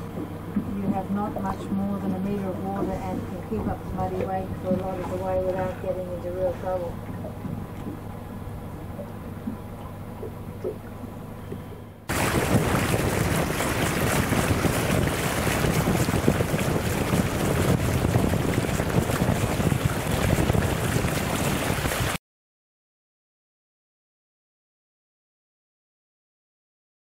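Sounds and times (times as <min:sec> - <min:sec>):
boat engine droning: 0:00.0 - 0:22.2
water rushing along hull: 0:00.0 - 0:22.2
wind buffeting microphone: 0:12.1 - 0:22.2.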